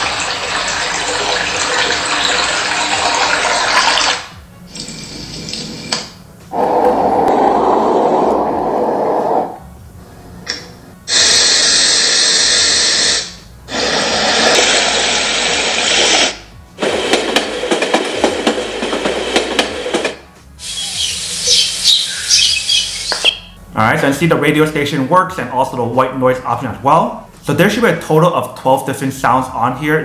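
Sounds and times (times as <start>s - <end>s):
high chirping: 20.6s - 23.6s.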